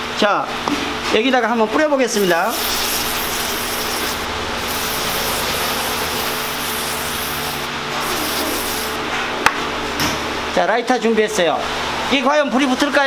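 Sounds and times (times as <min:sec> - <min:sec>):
aerosol can spraying foam: 0:02.1 - 0:09.0.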